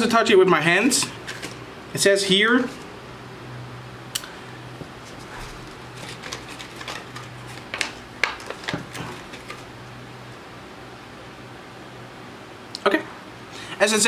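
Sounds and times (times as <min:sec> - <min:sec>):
steady low hum: 0:00.0 - 0:14.0
plastic package crinkling: 0:05.1 - 0:09.7.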